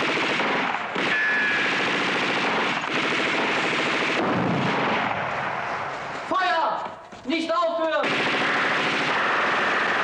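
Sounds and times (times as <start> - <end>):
machine-gun fire: 0.0 - 5.6, 8.0 - 10.0.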